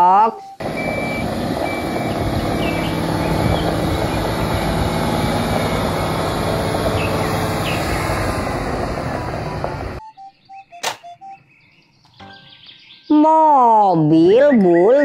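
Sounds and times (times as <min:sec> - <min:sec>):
truck engine running: 0:00.4 - 0:10.0
tyres on gravel: 0:00.6 - 0:10.0.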